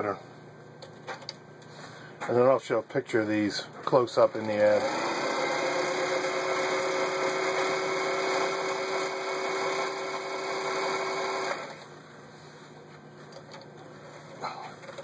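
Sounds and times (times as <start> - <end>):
sewing machine stitching: 4.3 - 11.8.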